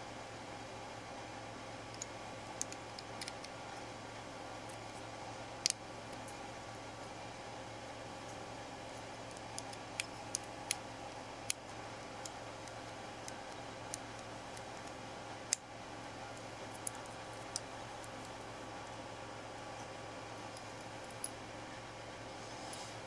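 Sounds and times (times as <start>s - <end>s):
steady low hum: 0.0s - 23.0s
small clicks and taps of parts: 1.9s - 3.6s.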